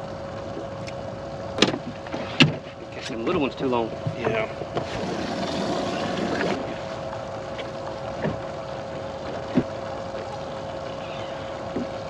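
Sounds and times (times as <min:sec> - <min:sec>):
trolling motor humming: 0:00.0 - 0:12.0
water rushing: 0:00.0 - 0:12.0
light knocks on boat: 0:01.6 - 0:03.4, 0:04.0 - 0:04.9, 0:07.6 - 0:08.5, 0:09.3 - 0:10.4, 0:11.7 - 0:12.0.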